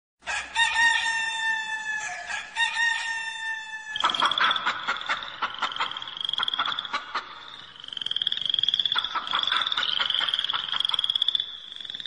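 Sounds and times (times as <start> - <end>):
rooster crowing: 0.2 - 4.2
quick repeated croaking calls: 3.9 - 12.0.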